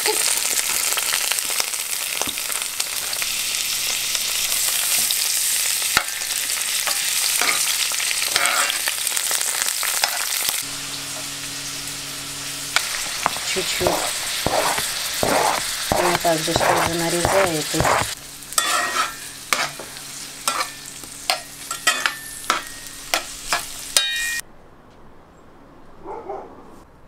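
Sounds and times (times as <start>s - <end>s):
vegetables sizzling in oil: 0.0s - 24.4s
metal spoon scraping pan: 8.3s - 8.9s, 12.8s - 24.4s.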